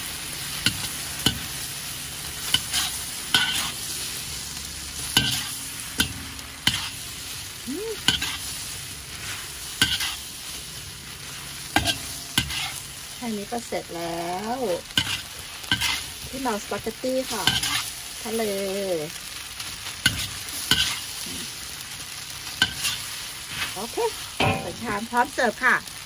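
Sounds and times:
food sizzling in a wok: 0.0s - 26.0s
metal spatula scraping a wok: 0.6s - 7.4s, 8.0s - 25.4s.

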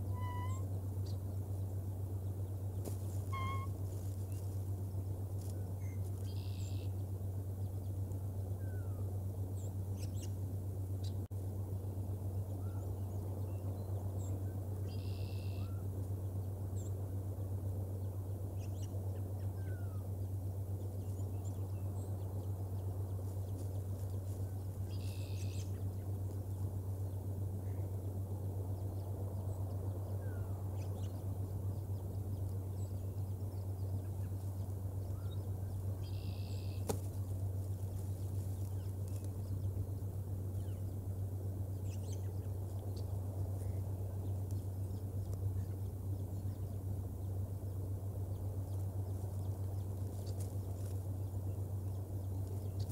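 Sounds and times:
faint bird chirps: 0.0s - 4.5s, 5.4s - 7.1s, 12.6s - 17.0s, 23.5s - 28.1s, 28.8s - 52.9s
songbird trilling: 0.0s - 4.5s, 5.4s - 7.0s, 12.6s - 15.8s, 23.5s - 26.1s, 28.8s - 37.3s, 41.7s - 52.9s
steady low hum: 0.0s - 52.9s.

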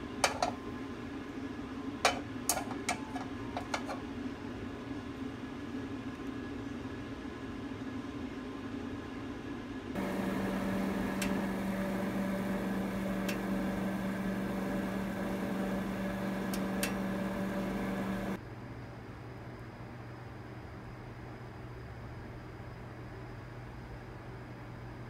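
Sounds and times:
countertop oven humming: 0.0s - 6.0s, 10.0s - 18.4s
oven fan hiss: 10.0s - 18.4s.

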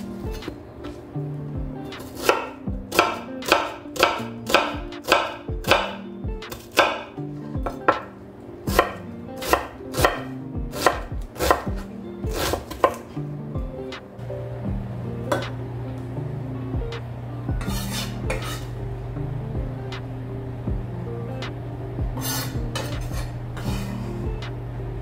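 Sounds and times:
knife chopping on wooden board: 2.2s - 8.1s, 8.7s - 13.1s.

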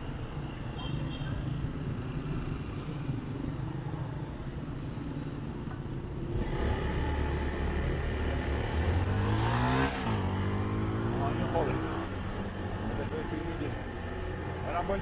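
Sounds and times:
road and traffic noise: 0.0s - 15.0s
motorcycle engine: 6.3s - 15.0s.

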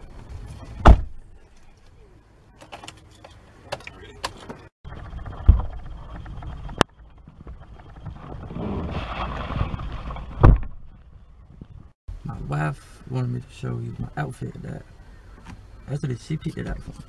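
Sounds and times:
heavy thump: 0.8s - 1.2s, 10.2s - 10.9s.

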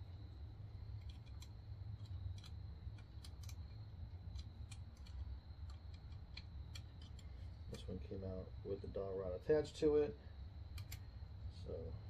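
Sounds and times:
low steady hum: 0.0s - 12.0s
metallic clicks and taps: 1.0s - 7.4s, 10.8s - 11.0s.

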